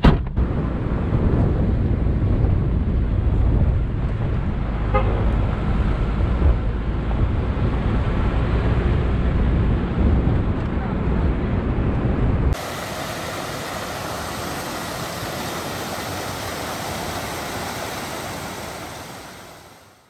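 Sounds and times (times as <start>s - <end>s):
engine rumble: 0.0s - 19.8s
wind: 0.0s - 20.0s
car horn toot: 4.9s - 5.2s.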